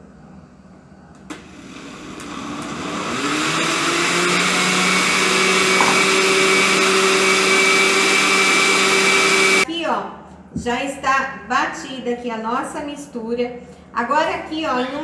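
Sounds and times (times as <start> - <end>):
blender motor running: 1.4 - 9.7.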